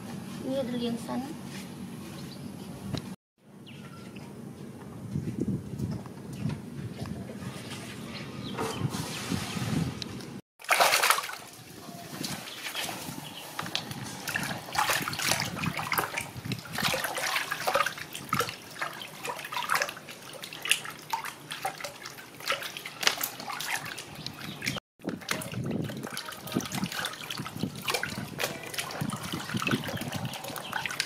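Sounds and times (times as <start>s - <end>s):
water splashing in a plastic basin: 10.6s - 12.8s, 13.6s - 31.0s.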